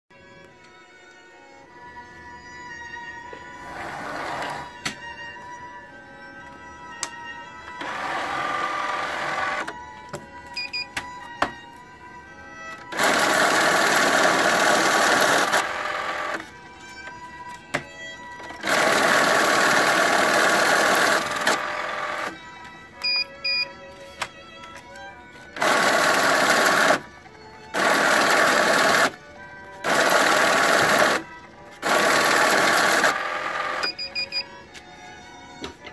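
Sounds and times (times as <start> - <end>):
bill counter motor counting notes: 3.6 - 4.8, 7.7 - 9.8, 12.9 - 16.5, 18.4 - 22.4, 25.6 - 27.1, 27.7 - 34.5
short beeps: 33.8 - 34.5.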